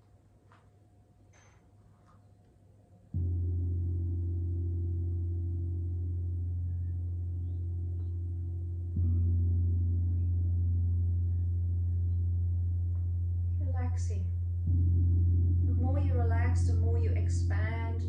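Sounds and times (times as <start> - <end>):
gong ringing: 3.2 - 13.5.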